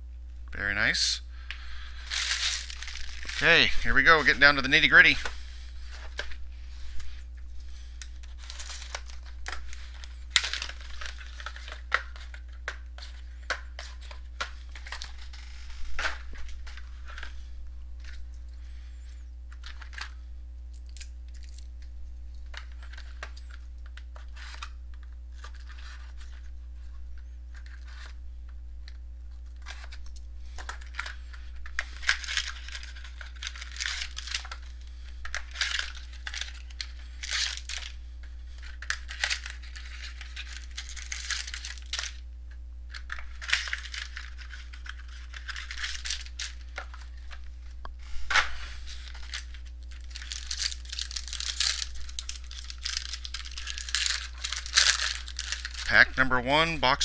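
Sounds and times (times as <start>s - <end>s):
plastic wrap tearing and crinkling: 1.6s - 18.2s, 22.4s - 26.5s, 29.4s - 42.3s, 42.9s - 56.0s.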